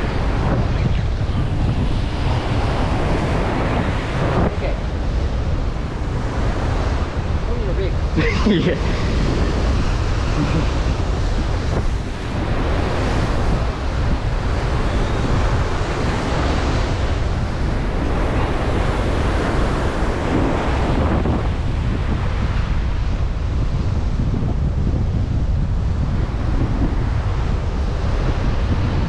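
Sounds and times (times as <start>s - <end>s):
ocean surf breaking on rocks: 0.0s - 24.2s
strong wind buffeting microphone: 0.0s - 29.0s.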